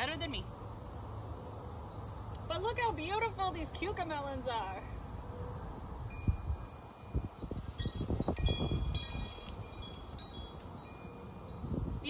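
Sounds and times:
metal chimes ringing: 0:06.1 - 0:11.7.

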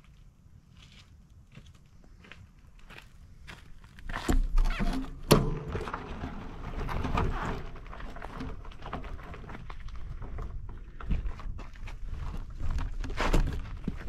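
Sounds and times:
bicycle rattling on dirt trail: 0:04.0 - 0:14.0.

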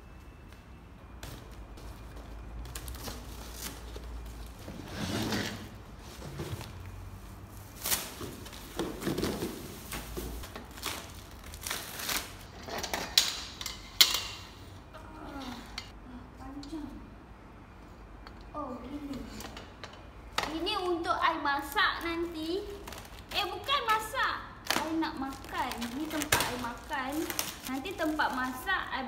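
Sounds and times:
cardboard rustling and scraping: 0:02.8 - 0:10.9.

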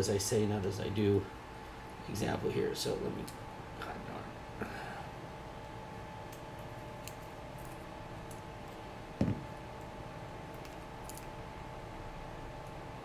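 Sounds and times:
faint steady hum: 0:00.0 - 0:13.0
dull thump: 0:09.2 - 0:09.5.

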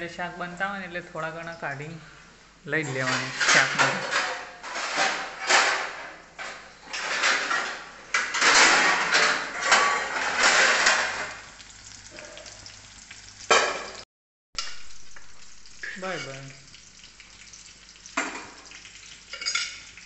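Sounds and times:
garlic sizzling in hot oil: 0:09.5 - 0:14.0, 0:14.6 - 0:20.0.

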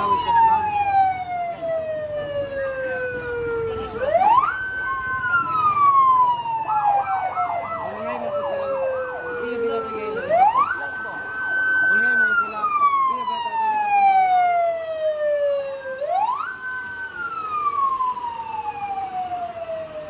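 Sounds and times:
fire truck siren wailing: 0:00.0 - 0:20.0
fast warbling siren tone: 0:04.0 - 0:16.5.

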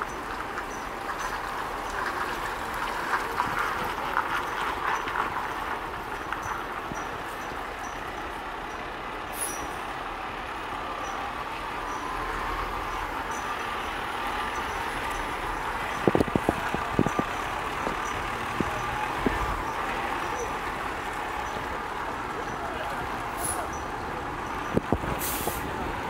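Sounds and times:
diesel truck engine running: 0:00.0 - 0:26.0
short air hiss: 0:25.2 - 0:25.7.

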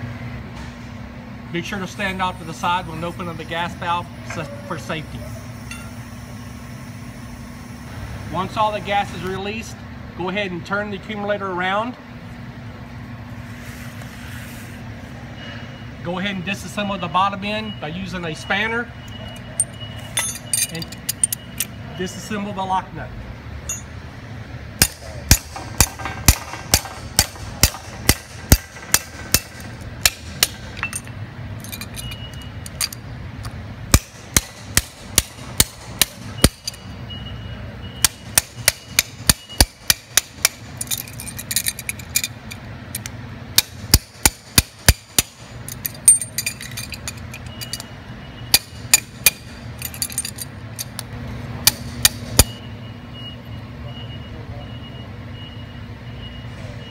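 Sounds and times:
hammer striking metal wrench: 0:05.7 - 0:06.0, 0:19.1 - 0:21.7, 0:23.7 - 0:23.9, 0:24.8 - 0:33.0, 0:33.9 - 0:36.9, 0:38.0 - 0:47.9, 0:48.5 - 0:51.0, 0:51.7 - 0:52.6.

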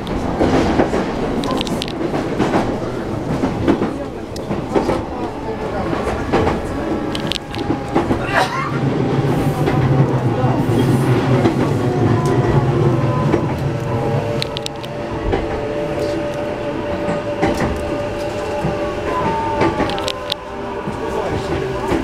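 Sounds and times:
rail-joint clicks: 0:00.0 - 0:08.2, 0:13.2 - 0:22.0
train wheels rumbling on track: 0:00.0 - 0:22.0.

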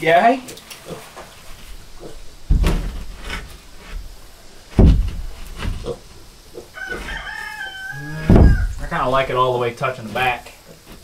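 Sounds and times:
steady pitched hum: 0:01.4 - 0:07.1, 0:07.9 - 0:09.5
wooden board thumping: 0:02.4 - 0:06.3, 0:08.1 - 0:09.3.

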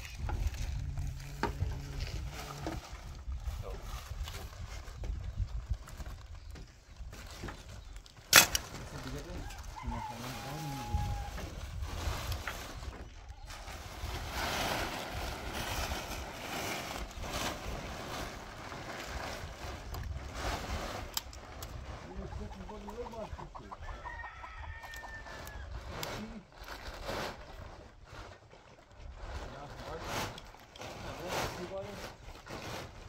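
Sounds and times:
constant rough noise: 0:00.0 - 0:33.0
rooster crowing: 0:09.4 - 0:11.4, 0:23.9 - 0:25.7
chickens clucking: 0:22.1 - 0:25.7.

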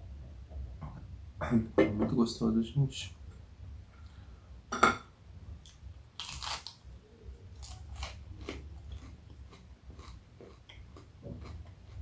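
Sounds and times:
crunching fried chicken: 0:06.2 - 0:06.8, 0:07.5 - 0:12.0.

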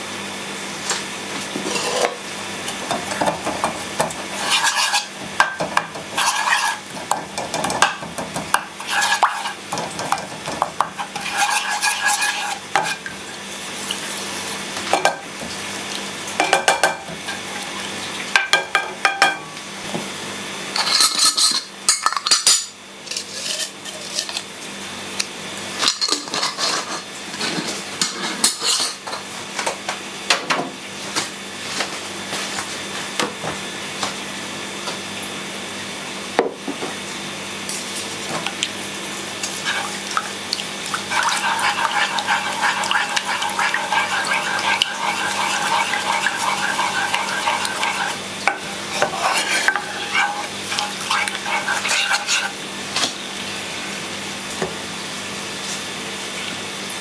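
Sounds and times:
wooden spatula scraping a pan: 0:01.6 - 0:02.2, 0:04.3 - 0:05.2, 0:06.1 - 0:06.9, 0:08.8 - 0:09.6, 0:10.9 - 0:13.0, 0:39.6 - 0:39.9, 0:41.1 - 0:52.6
garlic sizzling in oil: 0:03.0 - 0:07.8, 0:08.5 - 0:14.8, 0:39.3 - 0:52.8.

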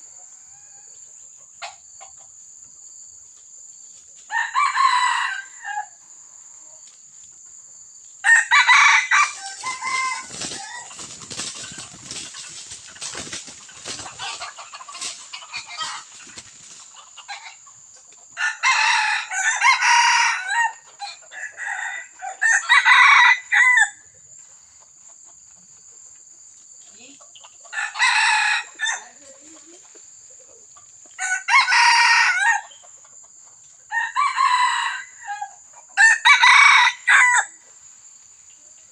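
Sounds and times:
rooster crowing: 0:04.3 - 0:06.0, 0:08.2 - 0:11.9, 0:15.5 - 0:16.1, 0:18.4 - 0:24.0, 0:27.7 - 0:29.2, 0:31.2 - 0:32.7, 0:33.9 - 0:37.6
dry leaves crackling: 0:08.3 - 0:17.3.

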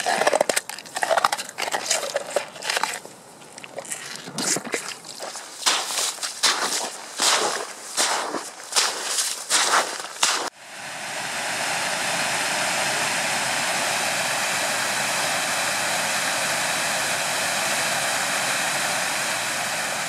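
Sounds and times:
dog footsteps on ice: 0:00.0 - 0:10.5.

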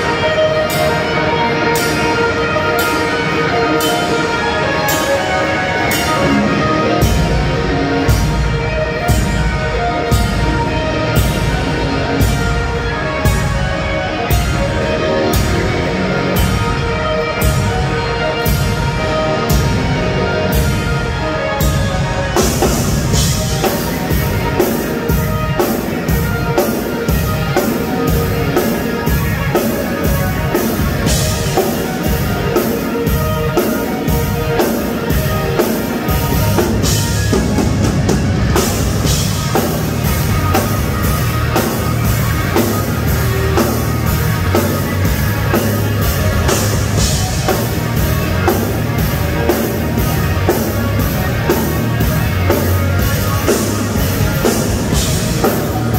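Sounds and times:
heavy bass: 0:00.0 - 0:55.9
live rock band playing: 0:00.0 - 0:55.9
drum kit beat: 0:01.6 - 0:55.9.

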